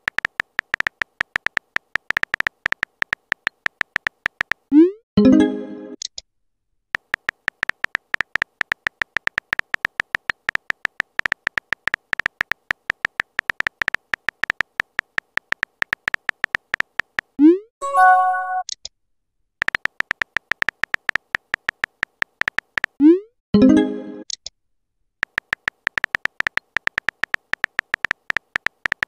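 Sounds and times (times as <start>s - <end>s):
keyboard typing clicks: 0.0s - 4.7s, 7.0s - 18.8s, 19.6s - 23.0s, 25.2s - 29.0s
brief chime: 17.8s - 18.6s.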